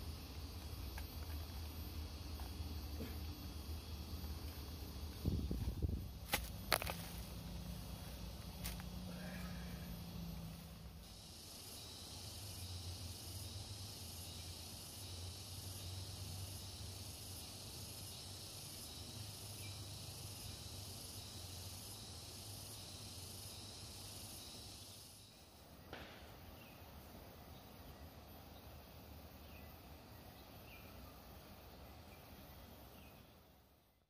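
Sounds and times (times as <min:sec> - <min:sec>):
low hum: 0:00.0 - 0:11.1
high-pitched insect chorus: 0:00.0 - 0:34.0.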